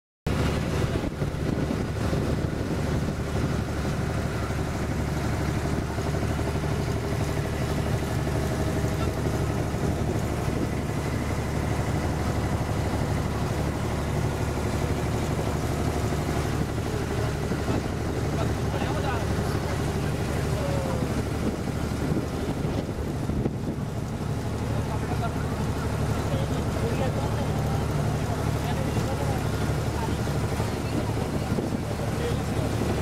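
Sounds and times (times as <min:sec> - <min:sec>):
wind on microphone: 0:00.3 - 0:06.2, 0:07.0 - 0:14.4, 0:20.9 - 0:24.3, 0:29.9 - 0:33.0
boat engine droning: 0:00.3 - 0:33.0
water noise: 0:00.3 - 0:33.0.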